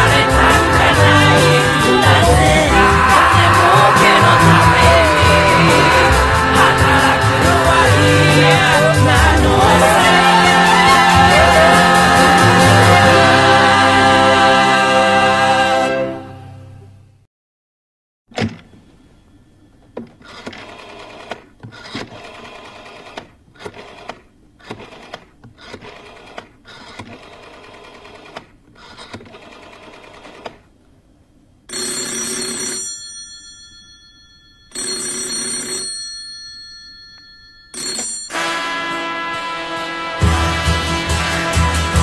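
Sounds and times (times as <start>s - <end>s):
telephone bell ringing: 31.7s - 38.5s.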